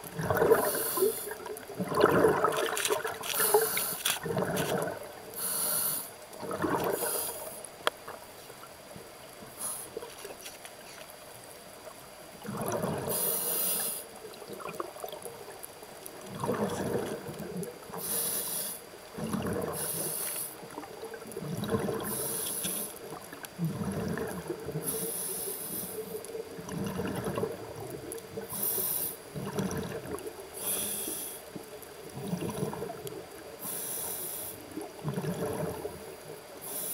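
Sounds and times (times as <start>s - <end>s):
exhaled bubbles burbling: 0.0s - 5.3s, 6.4s - 7.2s, 12.4s - 13.2s, 14.2s - 15.6s, 16.2s - 18.0s, 19.1s - 22.4s, 23.0s - 24.9s, 26.4s - 28.6s, 29.3s - 30.6s, 31.7s - 33.5s, 34.7s - 36.4s
regulator inhale hiss: 0.5s - 1.5s, 3.3s - 4.2s, 5.3s - 6.2s, 6.9s - 7.7s, 9.5s - 10.0s, 13.0s - 14.2s, 17.9s - 19.0s, 19.8s - 20.6s, 22.0s - 23.0s, 24.8s - 26.2s, 28.5s - 29.3s, 30.6s - 31.6s, 33.6s - 34.8s, 36.6s - 36.9s.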